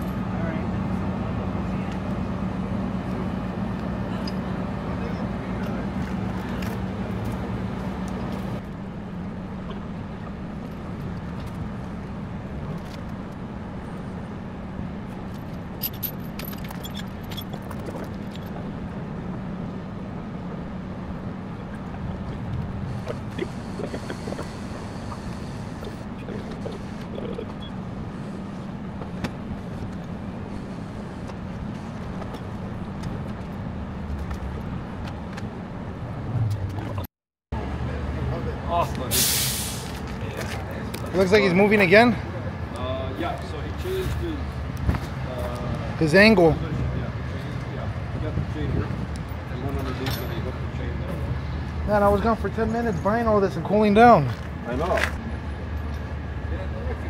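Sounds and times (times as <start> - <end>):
vehicle engine idling: 0.0 - 37.0
street noise: 0.0 - 57.0.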